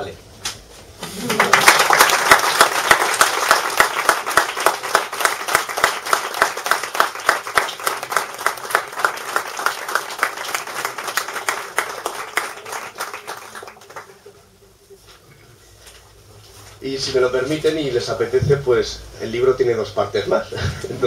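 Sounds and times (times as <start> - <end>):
audience applauding: 1.0 - 14.4.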